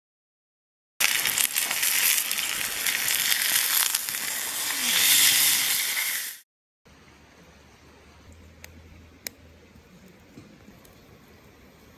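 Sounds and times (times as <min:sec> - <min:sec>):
steak sizzling in frying pan: 0:01.0 - 0:06.4
fat spitting crackles: 0:01.2 - 0:06.4.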